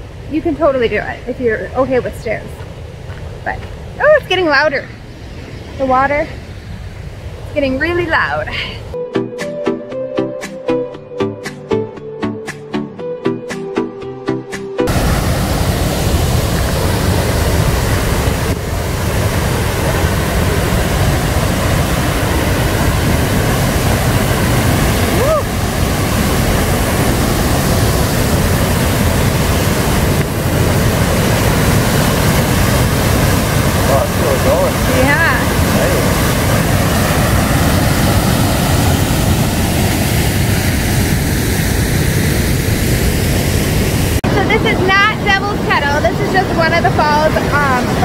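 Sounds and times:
waterfall pouring over rock: 0:14.9 - 0:44.2.

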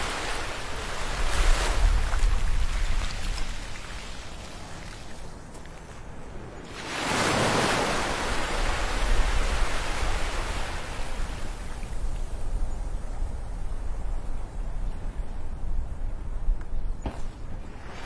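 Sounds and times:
surf washing on a beach: 0:00.0 - 0:05.3, 0:06.6 - 0:13.4.

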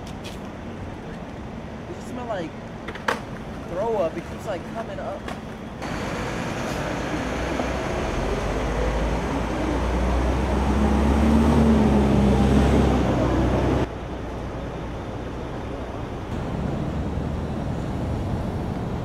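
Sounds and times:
city street noise: 0:00.0 - 0:19.0
heavy vehicle engine rumble: 0:00.0 - 0:19.0.

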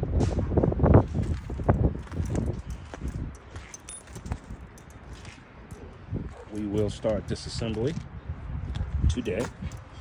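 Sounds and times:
keys jingling: 0:01.3 - 0:06.9.

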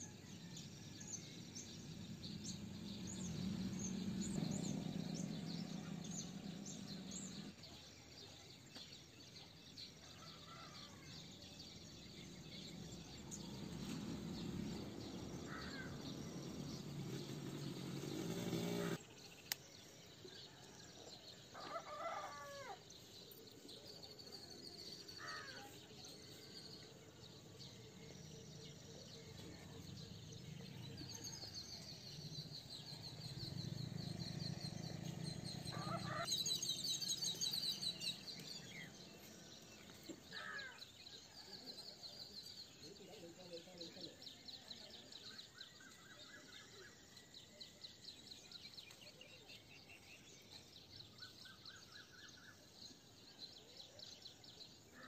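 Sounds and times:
small birds twittering: 0:00.0 - 0:55.0.

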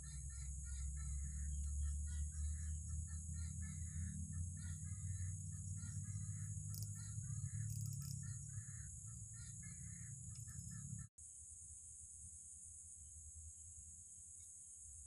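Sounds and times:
birds calling: 0:00.0 - 0:11.1
high insect hum: 0:00.0 - 0:15.0.

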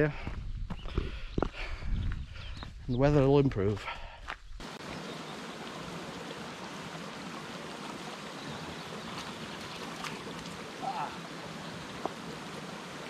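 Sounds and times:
mountain stream running: 0:04.2 - 0:13.0.

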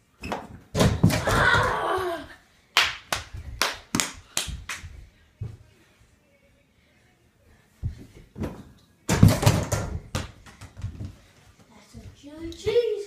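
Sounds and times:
ball clattering on hoop and door: 0:00.2 - 0:01.4, 0:08.4 - 0:11.1
ball bouncing on tile floor: 0:00.2 - 0:01.7, 0:07.8 - 0:11.2.

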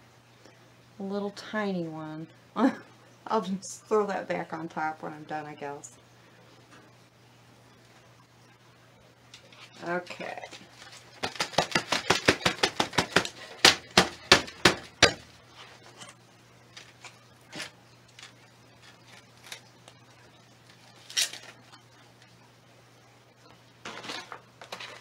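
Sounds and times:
taps and knocks on a pot: 0:11.2 - 0:15.3.

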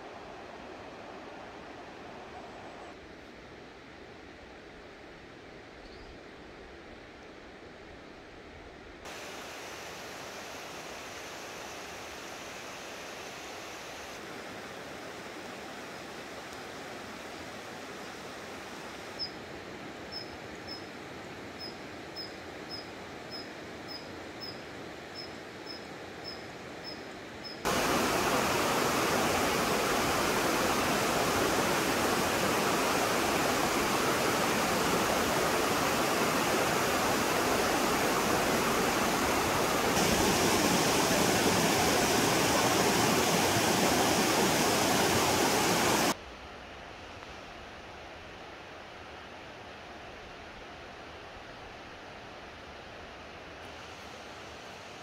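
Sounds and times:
mountain stream rushing: 0:00.0 - 0:02.6, 0:09.0 - 0:19.9, 0:27.6 - 0:46.2.

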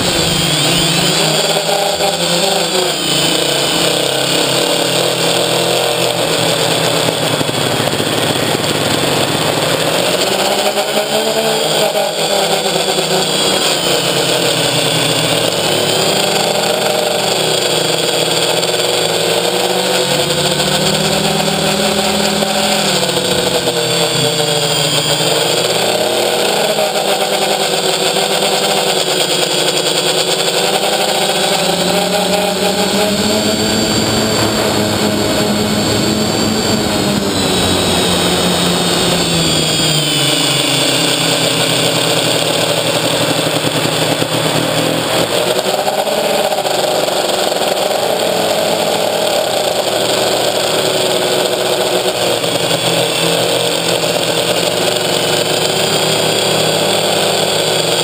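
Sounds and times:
quadcopter motors whining: 0:00.0 - 0:58.0.

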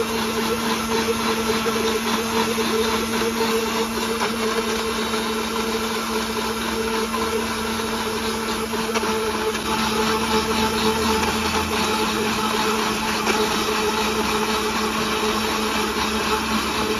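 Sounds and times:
liquid churning in blender jar: 0:00.0 - 0:16.9
mixer grinder motor hum: 0:00.0 - 0:16.9.

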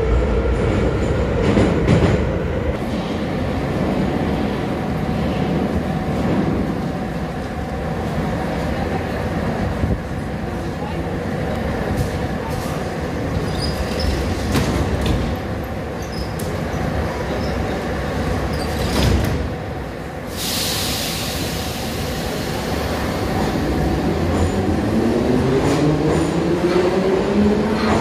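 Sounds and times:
train low rumble: 0:00.0 - 0:28.0
loud hiss: 0:20.3 - 0:23.1.

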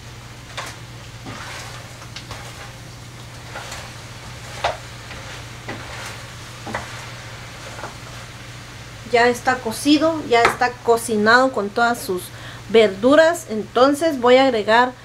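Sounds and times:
stew sizzling: 0:00.0 - 0:13.9
spatula scraping and knocking pot: 0:00.5 - 0:08.4.

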